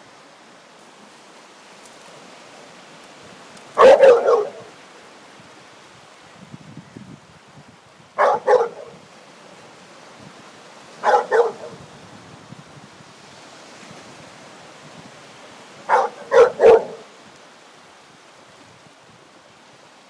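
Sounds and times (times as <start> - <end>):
dog barking: 3.8 - 4.7, 8.2 - 9.0, 11.0 - 11.8, 15.9 - 17.1.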